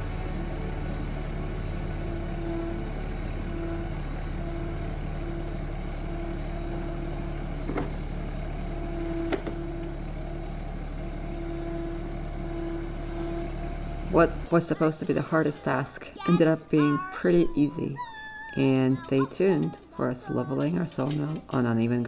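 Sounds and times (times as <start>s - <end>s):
tractor engine running: 0.0s - 16.0s.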